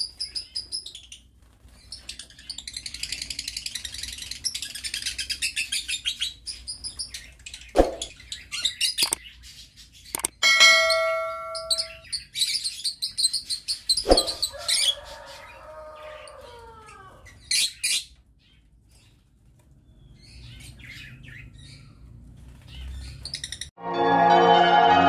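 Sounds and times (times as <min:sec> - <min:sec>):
lovebirds chirping: 0:01.9 - 0:14.9
short ringing chime: 0:10.4 - 0:12.0.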